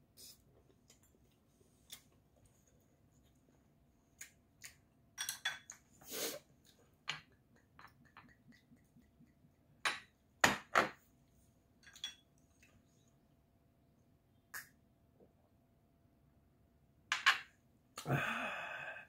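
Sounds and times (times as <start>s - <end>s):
spoon tapping against bowls: 5.2s - 5.8s, 7.1s - 10.9s.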